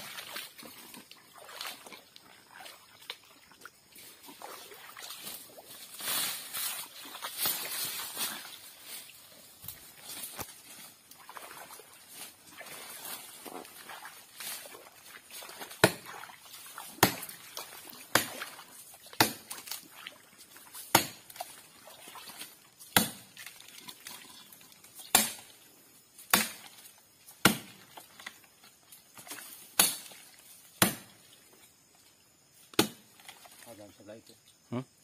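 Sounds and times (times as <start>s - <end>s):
axe chopping tree trunk: 15.7s - 16.2s, 16.8s - 17.4s, 18.0s - 18.5s, 19.1s - 19.8s, 20.9s - 21.4s, 22.8s - 23.4s, 25.0s - 25.5s, 26.2s - 26.8s, 27.4s - 27.9s, 29.2s - 30.2s, 30.8s - 31.2s, 32.7s - 33.2s.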